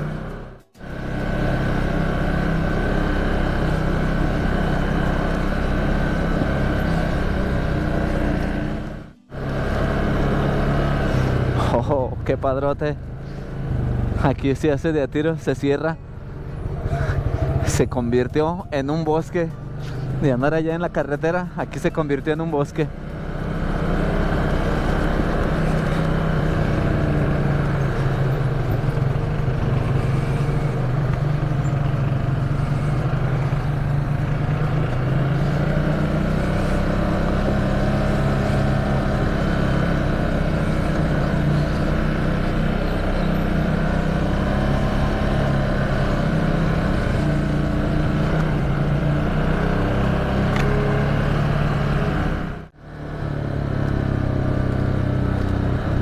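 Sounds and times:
quad bike engine running: 0.0s - 56.0s.

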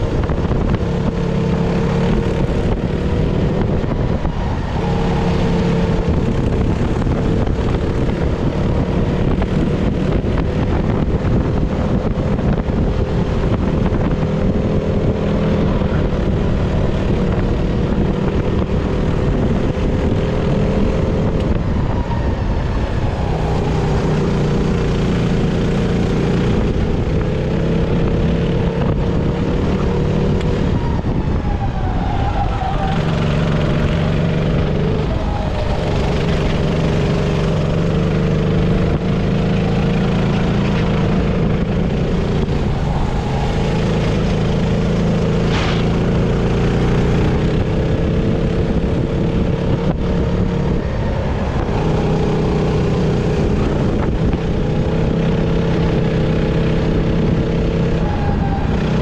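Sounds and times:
kart engine running hard: 0.0s - 59.0s
high-pitched squeal: 29.8s - 37.5s, 40.2s - 47.5s.

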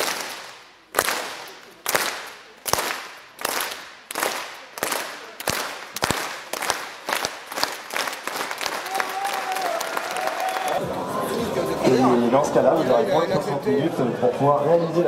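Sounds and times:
crowd clapping in unison: 0.0s - 10.9s.

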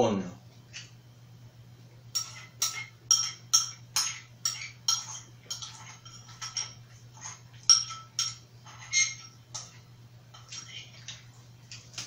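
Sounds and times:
metal spoon clinking against bowl: 2.1s - 6.8s, 7.6s - 10.7s.

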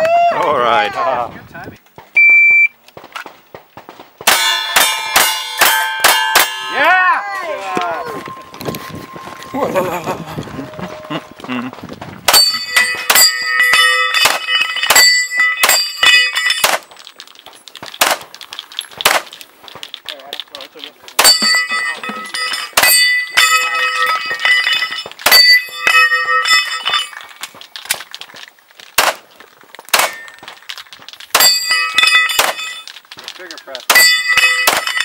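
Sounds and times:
steel target clanging: 4.3s - 11.2s, 12.3s - 17.0s, 20.6s - 27.6s, 29.9s - 30.4s, 31.3s - 35.0s
handgun shots: 17.9s - 18.3s, 19.0s - 19.4s, 29.0s - 29.2s, 29.9s - 30.3s.

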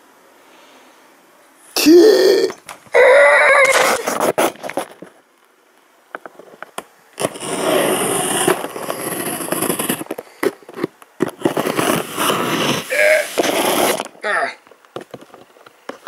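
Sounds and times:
rustling and crackling: 3.6s - 16.0s.

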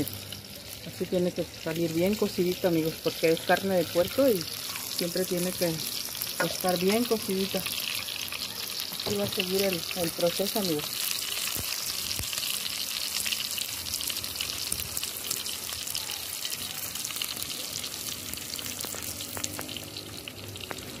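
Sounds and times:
meat sizzling in hot oil: 0.0s - 21.0s.

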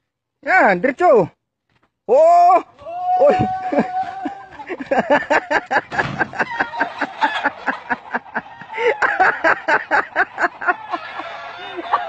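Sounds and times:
person laughing hard: 3.1s - 12.0s.

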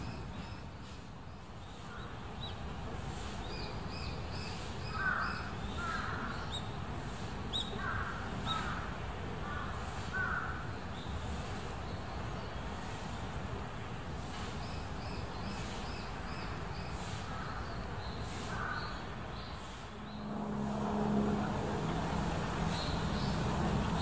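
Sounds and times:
low outdoor rumble: 19.8s - 24.0s.

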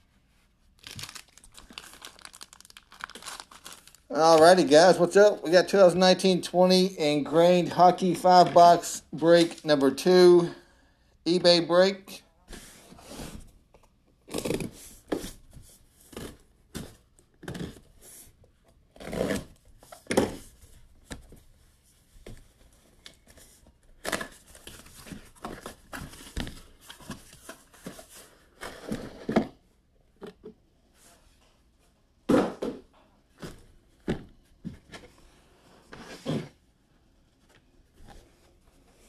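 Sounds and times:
packaging crinkling and tearing: 0.8s - 4.6s.

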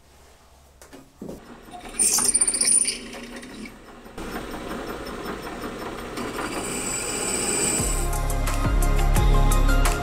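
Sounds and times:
drill press cutting steel: 1.6s - 8.1s
high-pitched metallic squeal: 1.7s - 3.7s, 6.3s - 8.0s.

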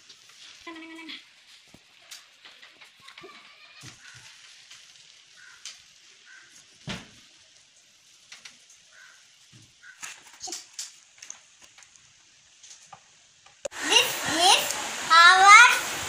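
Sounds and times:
small clicks and taps: 8.3s - 8.8s, 9.6s - 13.7s.

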